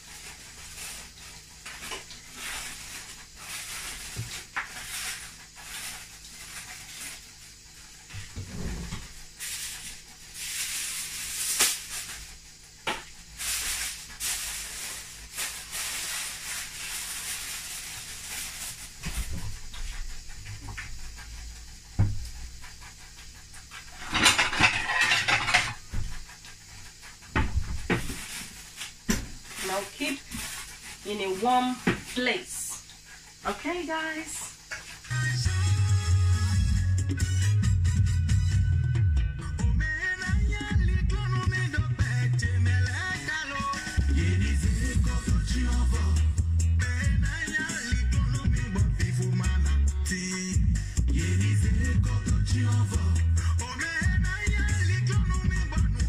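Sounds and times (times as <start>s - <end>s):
aluminium foil crinkling: 0.0s - 7.6s, 9.3s - 12.4s, 13.2s - 20.0s, 23.9s - 26.4s, 27.0s - 35.1s
rustling: 0.0s - 12.5s, 13.2s - 21.2s, 23.2s - 33.7s.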